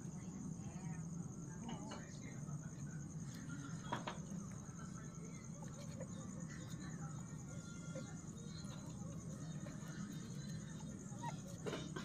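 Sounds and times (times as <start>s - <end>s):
crickets chirping: 0.0s - 12.0s
faint puppy whimpers: 7.4s - 12.0s.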